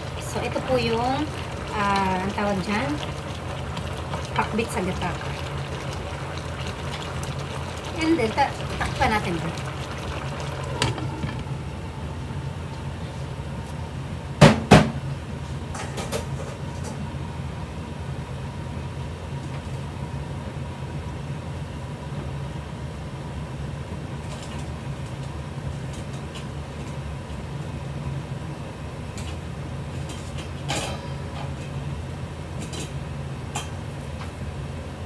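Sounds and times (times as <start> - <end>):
steady low hum: 0.0 - 14.4.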